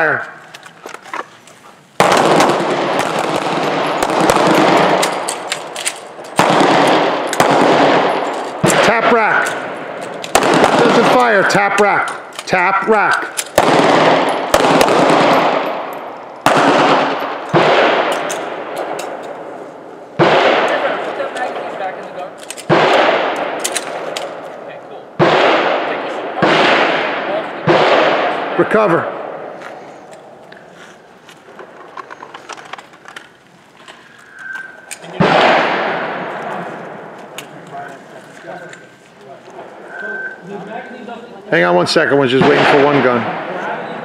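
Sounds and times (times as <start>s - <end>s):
clicks of guns being handled: 0.4s - 1.7s, 5.0s - 6.4s, 12.1s - 13.6s, 18.1s - 19.4s, 21.0s - 22.7s, 23.4s - 24.6s, 29.6s - 35.1s, 37.2s - 39.2s
handgun shots with long echo: 2.0s - 11.2s, 13.4s - 19.4s, 20.2s - 21.3s, 22.7s - 24.4s, 25.2s - 29.6s, 34.6s - 37.2s.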